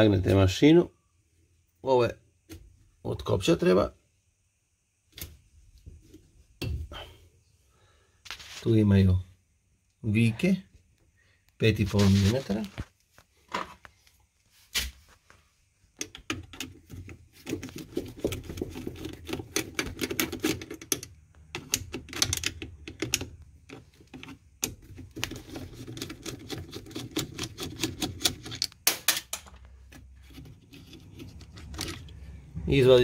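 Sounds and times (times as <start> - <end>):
hand tool clicking and scraping: 17.4 - 32.2.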